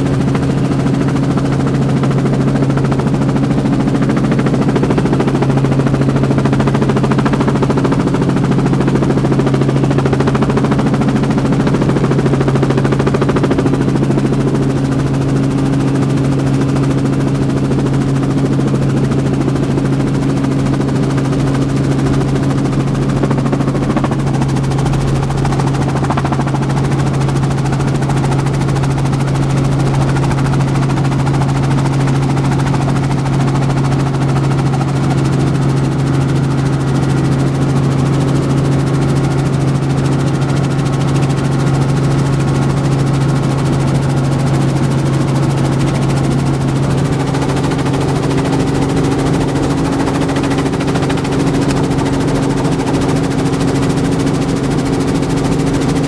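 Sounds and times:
helicopter engine and rotor drone: 0.0s - 56.0s.

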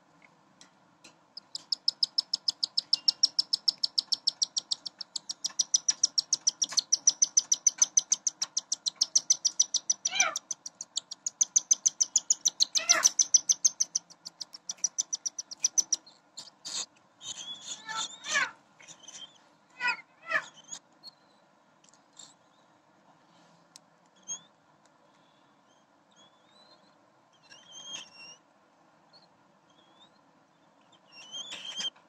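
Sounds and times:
chicks chirping rapidly: 1.4s - 20.8s
bird squawks: 12.5s - 13.5s, 16.6s - 20.8s.

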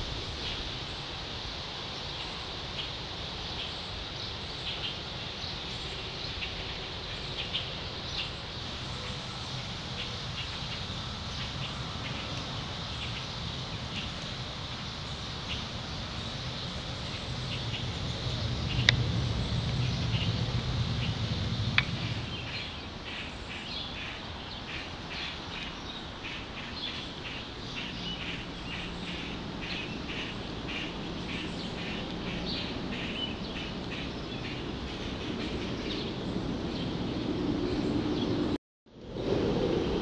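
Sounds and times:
steady background hiss: 0.0s - 37.1s
small birds chirping: 3.6s - 38.5s
low rumble: 15.6s - 23.0s.

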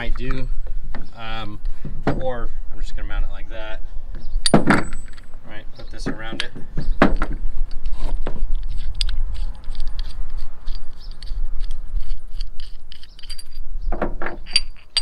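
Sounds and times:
hardware clicking and clinking: 4.4s - 15.0s.

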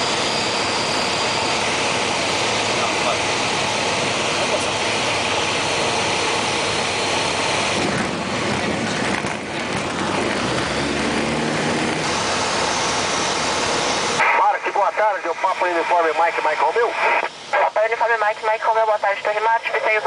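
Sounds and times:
light aircraft engine and propeller: 0.0s - 20.0s.

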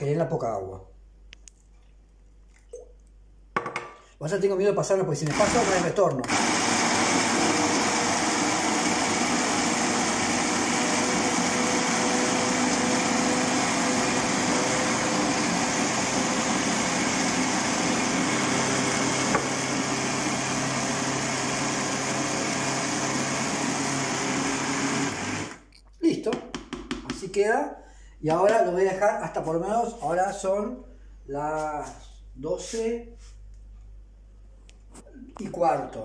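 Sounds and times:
blender grinding: 5.2s - 25.7s.

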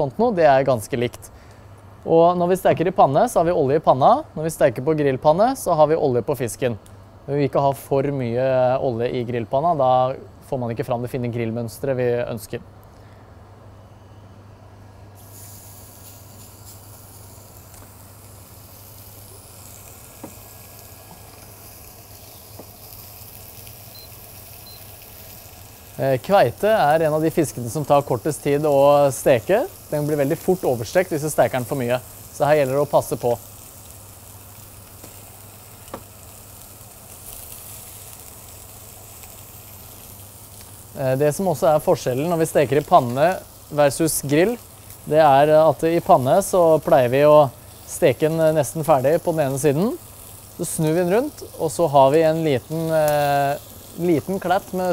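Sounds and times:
fish sizzling in a pan: 15.2s - 54.9s.

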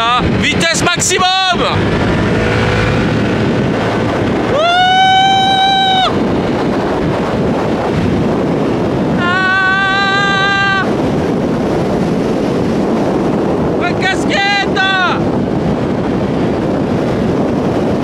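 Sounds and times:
scooter engine at full throttle: 0.0s - 13.8s
wind rushing over microphone: 0.0s - 18.0s
person shouting: 4.5s - 6.2s, 9.1s - 11.0s, 14.0s - 15.2s.

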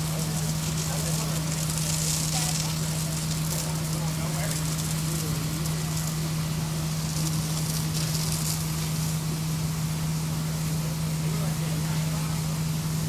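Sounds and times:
hose spraying water: 0.0s - 13.0s
pump humming: 0.0s - 13.0s.

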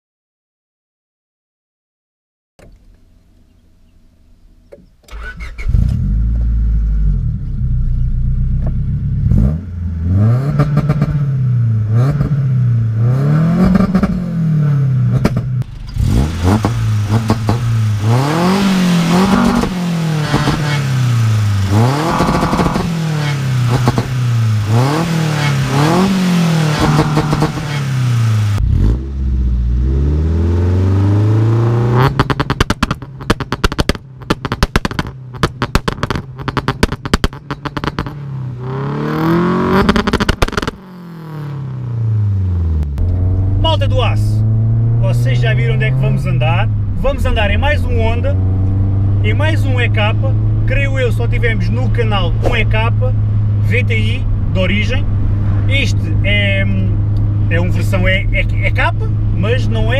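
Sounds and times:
car engine revving: 2.6s - 59.9s
exhaust pops: 13.0s - 14.3s, 15.0s - 29.6s, 31.2s - 41.9s, 42.6s - 59.9s.

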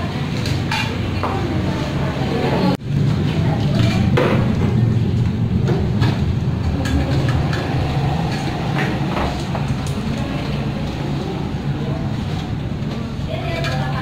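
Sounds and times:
steady low rumble: 2.7s - 13.4s.

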